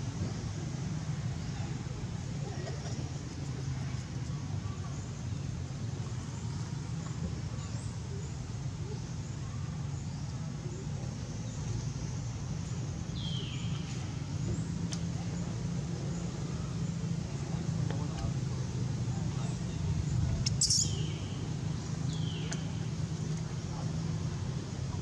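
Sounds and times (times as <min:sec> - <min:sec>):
baby monkey squealing: 0:20.5 - 0:20.9.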